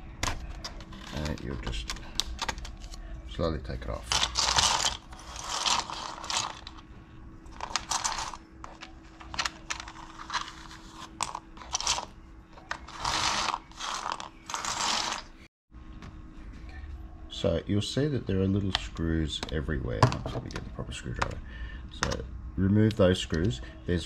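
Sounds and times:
plastic keycaps clattering: 0.2 - 2.8, 7.6 - 12.1.

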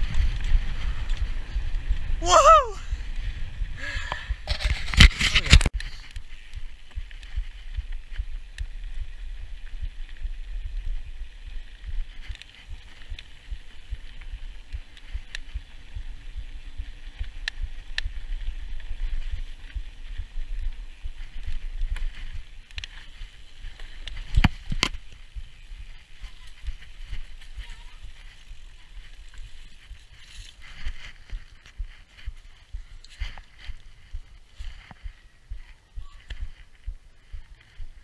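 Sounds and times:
bike clicks and rattles: 0.0 - 2.2, 3.0 - 38.0
wind on microphone: 0.0 - 12.8
bike tyres rumbling on gravel: 0.0 - 38.0.

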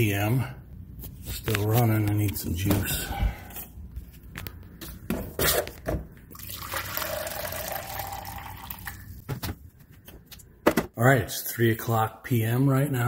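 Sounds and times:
drink pouring into cup: 6.3 - 9.2.

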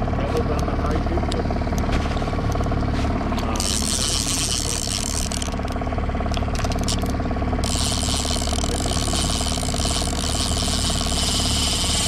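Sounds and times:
outboard motor running: 0.0 - 12.0
fishing reel gears clicking: 3.5 - 12.0.

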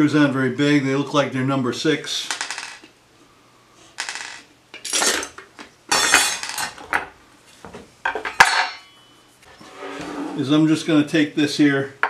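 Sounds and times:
small screws clinking and rattling: 2.3 - 2.9, 4.0 - 6.8.

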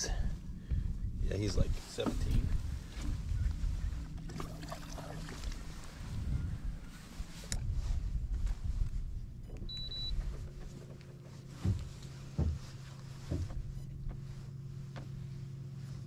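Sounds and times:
low rumbling noise: 0.0 - 16.0
short high beep: 9.7 - 10.1
dull knocks on boat: 11.6 - 14.2.

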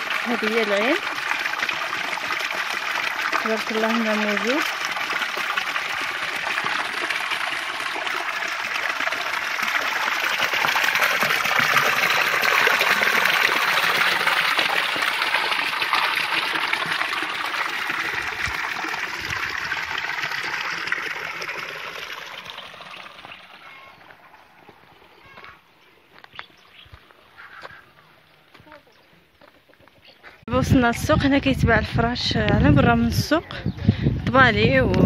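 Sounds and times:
water pouring into stone basin: 0.0 - 25.2.

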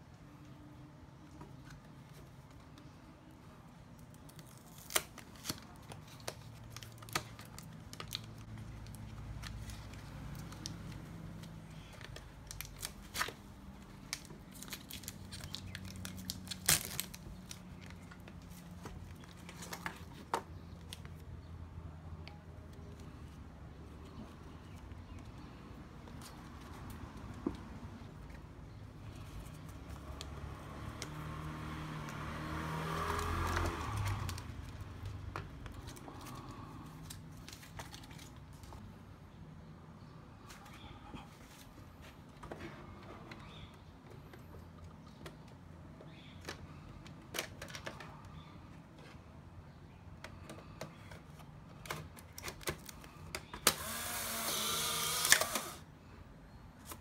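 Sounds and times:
vehicle engine passing by: 29.6 - 35.2
camera motor whirring: 53.7 - 55.8.

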